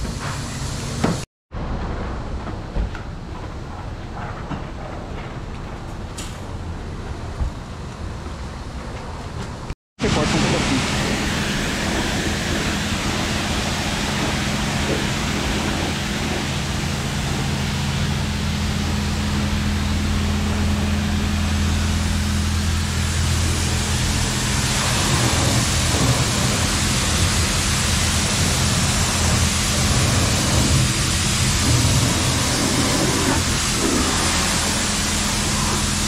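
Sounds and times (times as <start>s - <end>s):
water spraying onto a car: 10.0s - 36.0s.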